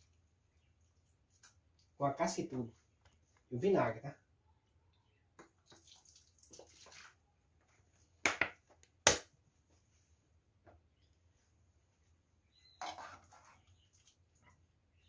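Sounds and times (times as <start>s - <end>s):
liquid trickling into water: 5.4s - 7.2s.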